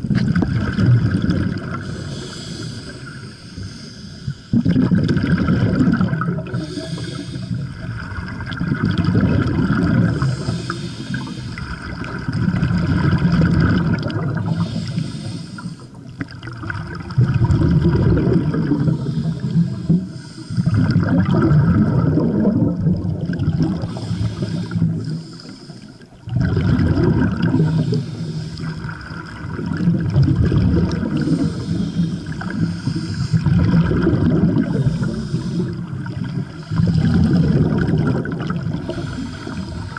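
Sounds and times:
gurgling exhaled bubbles: 0.0 - 3.2, 4.5 - 39.9
regulator hissing inhalations: 1.8 - 4.5, 6.5 - 7.8, 10.2 - 11.8, 14.5 - 16.0, 18.8 - 20.8, 23.8 - 26.2, 27.5 - 28.8, 31.2 - 33.5, 34.7 - 37.1, 38.8 - 39.9.

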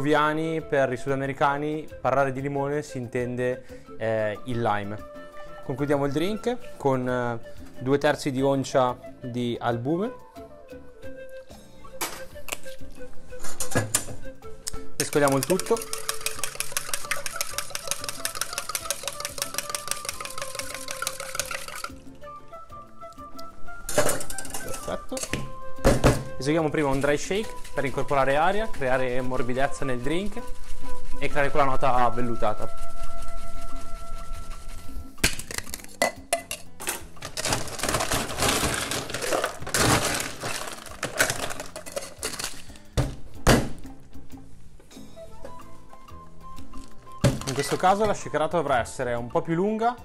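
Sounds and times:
background music with simple melody: 0.0 - 50.0
ice clattering into metal shaker: 15.0 - 22.0, 23.9 - 25.3, 35.2 - 42.8, 47.3 - 48.0
spoon clinking in metal tin: 15.0 - 22.0, 23.9 - 25.4, 35.3 - 42.7, 47.4 - 48.0.

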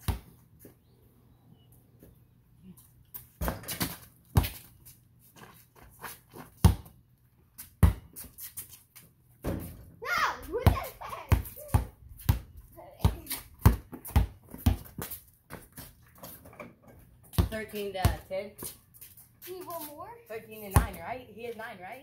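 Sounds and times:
basketball bouncing on concrete: 0.0 - 0.4, 3.1 - 4.7, 6.3 - 7.0, 7.6 - 8.3, 9.4 - 9.8, 10.4 - 18.8, 20.6 - 21.6.

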